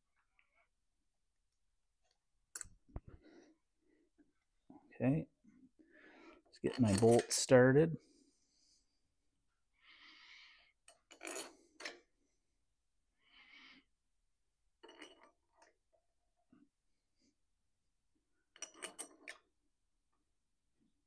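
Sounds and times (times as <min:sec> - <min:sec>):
metal bolts clicking and scraping: 0:06.6 - 0:07.4, 0:18.6 - 0:19.4.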